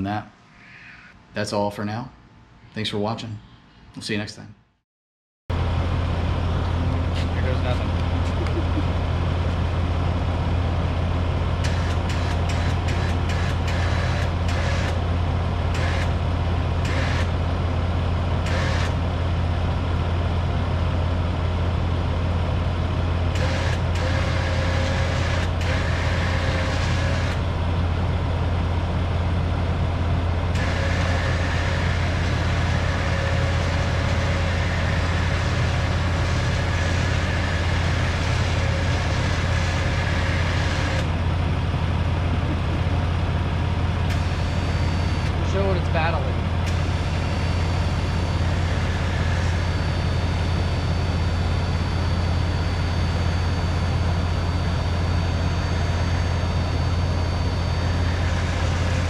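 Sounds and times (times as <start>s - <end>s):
electric winch humming under load: 5.5s - 59.0s.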